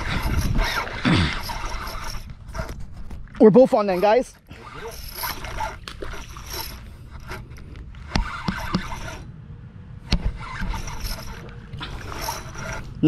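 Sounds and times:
fishing rod handling scrapes: 0.0s - 9.3s, 10.1s - 13.0s
low wind rumble: 0.0s - 13.0s.

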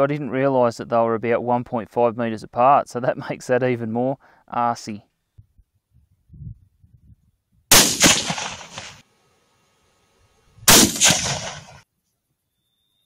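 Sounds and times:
rifle shots: 7.7s - 9.0s, 10.7s - 11.8s.

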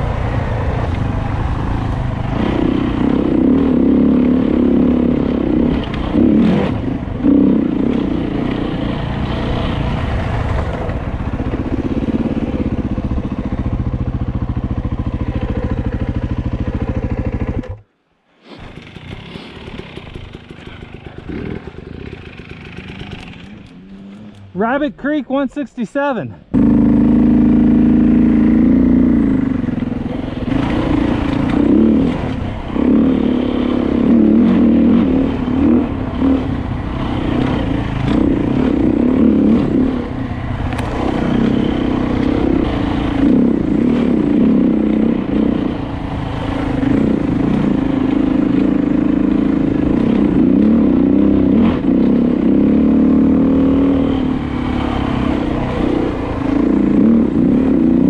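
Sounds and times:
dirt bike engine revving: 0.0s - 17.8s, 18.4s - 58.0s.

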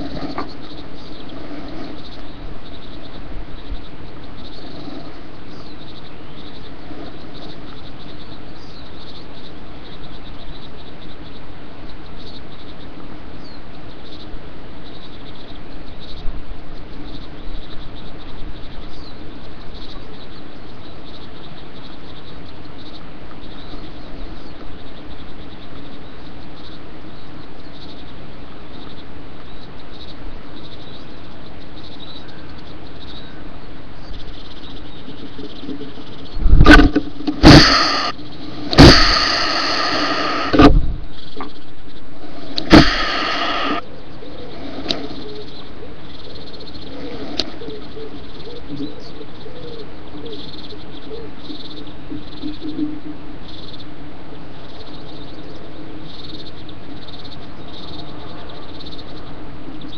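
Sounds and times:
background hiss: 0.0s - 59.9s
bird hissing: 36.5s - 41.3s, 42.2s - 45.5s.

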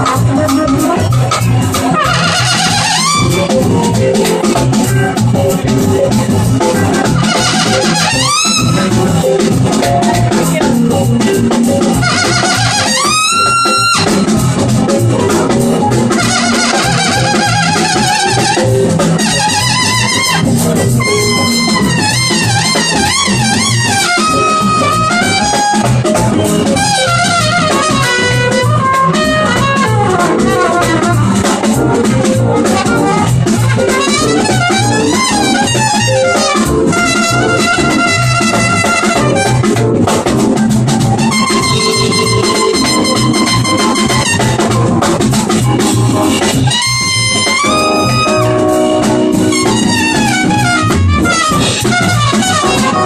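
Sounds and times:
drum kit: 0.0s - 53.0s
electric bass: 0.0s - 53.0s
jazz trumpet solo: 0.0s - 53.0s.

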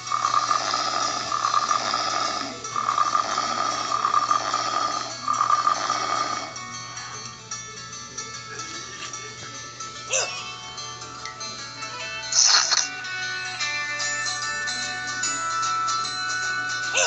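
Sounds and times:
cartoon snoring: 0.0s - 6.6s
background music: 0.0s - 17.0s.

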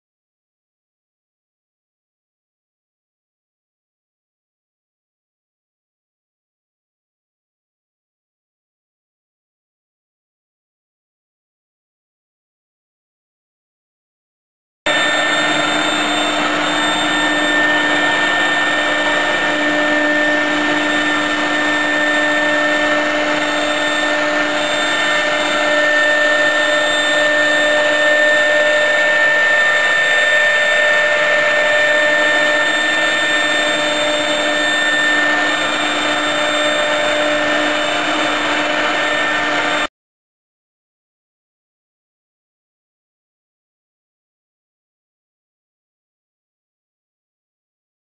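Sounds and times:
router bit cutting wood: 14.9s - 39.9s
router spindle whine: 14.9s - 39.9s.

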